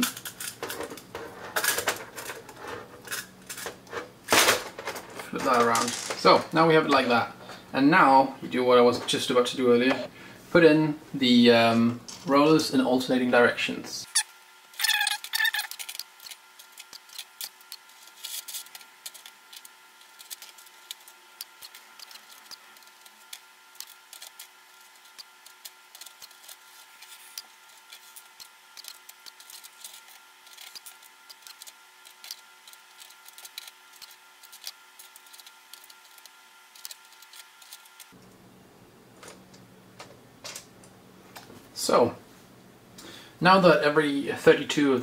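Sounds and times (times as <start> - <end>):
faint steady whine: 0.0 - 45.0.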